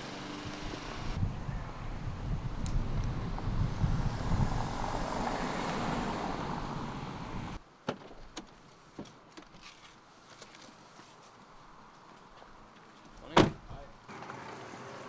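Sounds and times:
rushing noise with low rumble: 0.0 - 7.6
car door unlatching and opening: 13.3 - 13.7.

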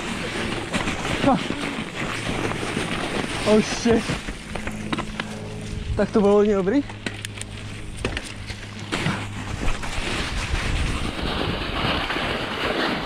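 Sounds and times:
tyres rolling over dirt and snow: 0.0 - 6.8, 7.6 - 13.0
wind rushing over microphone: 0.0 - 13.0
bike clicks and knocks: 1.9 - 9.8.

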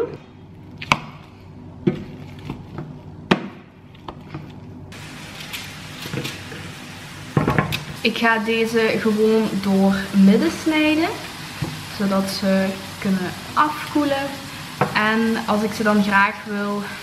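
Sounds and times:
steady hiss: 4.9 - 17.0.

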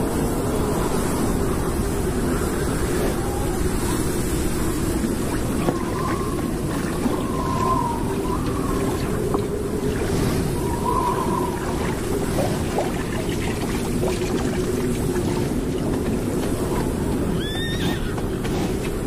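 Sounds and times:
steady low rushing noise: 0.0 - 17.4
horses whinnying: 17.2 - 18.5.

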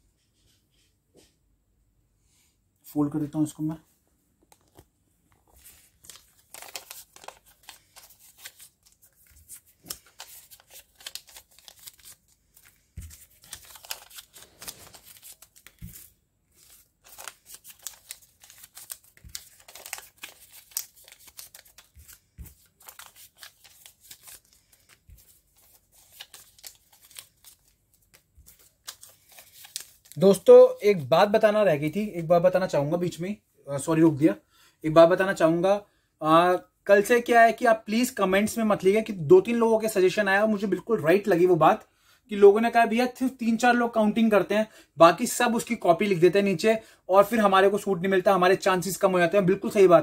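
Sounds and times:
paper crinkling and rustling: 4.4 - 30.5.

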